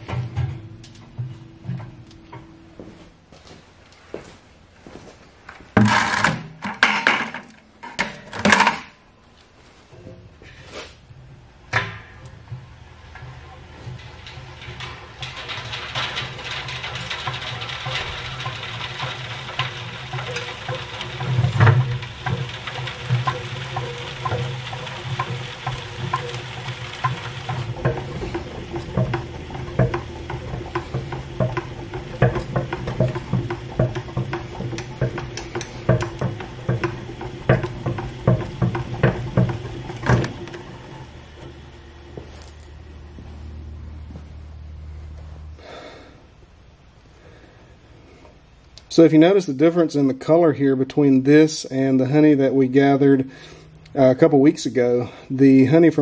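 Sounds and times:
metal strainer clattering and scraping: 5.8s - 8.9s, 11.8s - 41.8s
honey extractor spinning: 11.7s - 44.9s, 50.2s - 56.0s
light rattle: 12.1s - 41.6s.

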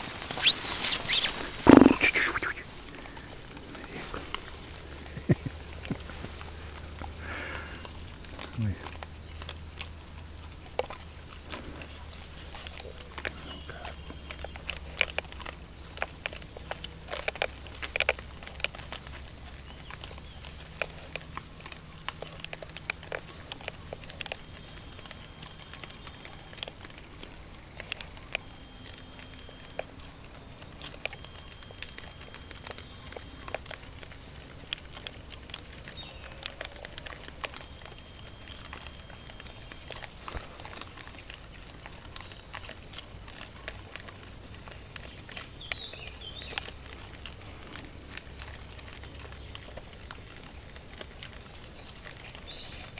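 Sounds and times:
steady high hiss: 0.0s - 6.5s
boar crunching and footfalls: 0.0s - 52.9s.

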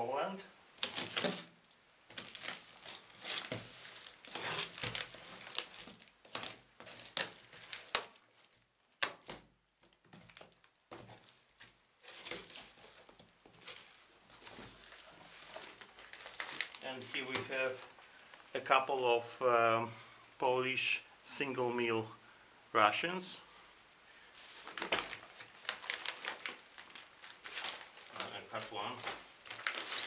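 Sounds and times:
box cutter slitting packing tape: 0.8s - 1.6s, 2.2s - 8.1s
tape tearing: 0.8s - 17.1s, 24.6s - 30.0s
tape and plastic crinkling: 0.8s - 18.6s, 24.4s - 30.0s.

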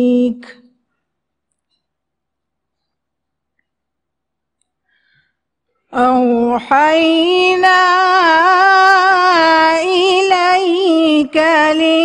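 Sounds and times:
woman reciting melodically: 0.0s - 0.9s, 5.9s - 12.0s.

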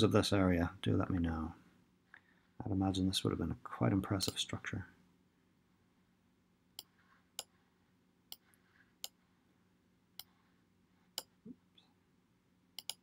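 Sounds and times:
computer mouse clicking: 12.8s - 13.0s.

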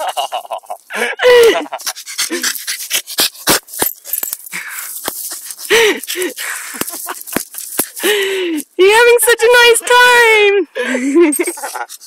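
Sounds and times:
dog panting: 1.7s - 8.2s
twigs cracking and snapping: 3.5s - 8.7s.

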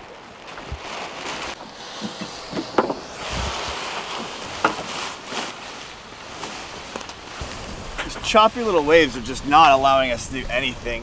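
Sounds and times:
sea waves: 0.0s - 11.0s
wind: 0.0s - 11.0s.

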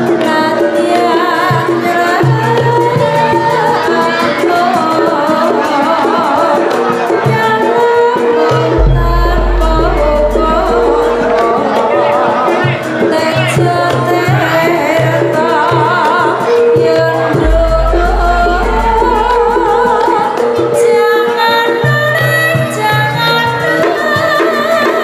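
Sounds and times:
person singing with vibrato: 0.0s - 25.0s
drum strokes: 8.1s - 13.3s, 16.7s - 21.6s
deep low boom: 8.8s - 11.6s, 17.4s - 20.1s.

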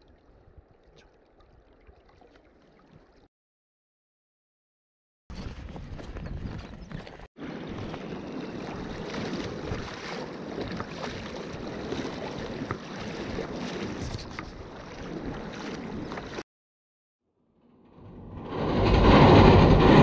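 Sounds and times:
water splashing around wading legs: 7.0s - 16.4s.

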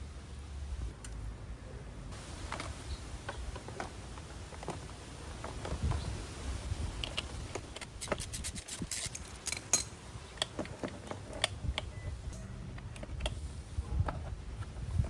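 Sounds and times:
ratchet clicks: 7.8s - 9.9s
metal hand tools clinking: 8.4s - 10.0s.

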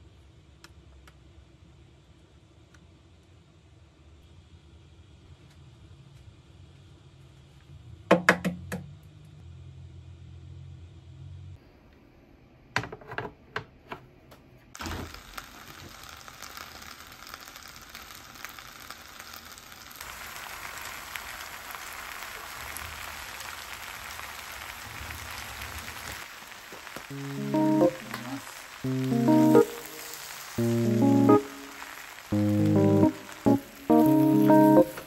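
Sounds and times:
knock: 8.1s - 8.8s
food sizzling in a pan: 14.8s - 35.0s.

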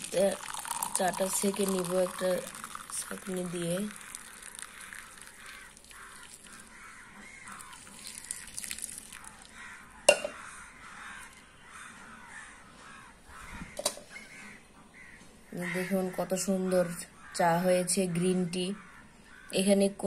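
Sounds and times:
crows cawing: 3.8s - 17.5s, 18.6s - 19.6s.

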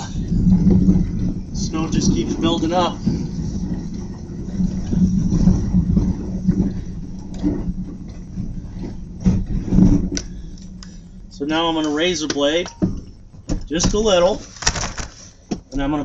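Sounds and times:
truck engine under load: 0.0s - 16.0s
short clunks: 6.5s - 14.5s.

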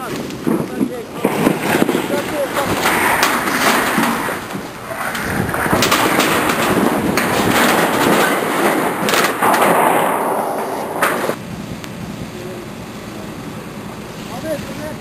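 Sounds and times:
sharp pops of burning wood: 0.0s - 12.0s
fire crackling and hissing: 0.0s - 15.0s.

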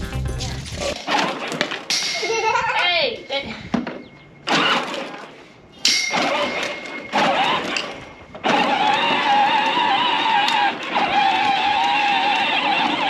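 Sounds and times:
toy tractor electric motor: 6.2s - 13.0s.

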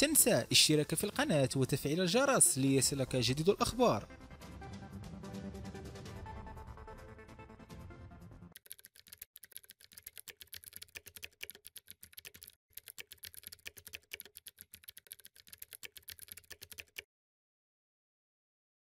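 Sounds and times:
keyboard typing: 8.6s - 17.1s.

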